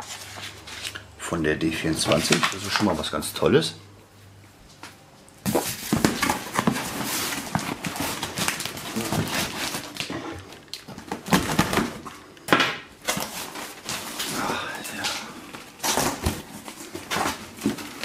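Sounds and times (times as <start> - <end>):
cardboard and paper rustling: 0.0 - 1.0, 1.9 - 3.0, 5.4 - 12.2, 13.0 - 18.0.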